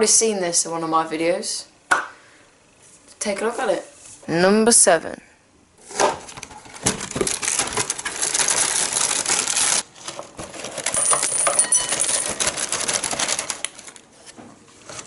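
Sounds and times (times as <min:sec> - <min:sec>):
plastic bag crinkling: 0:06.3 - 0:14.1
cereal rattling into bowl: 0:10.4 - 0:13.9.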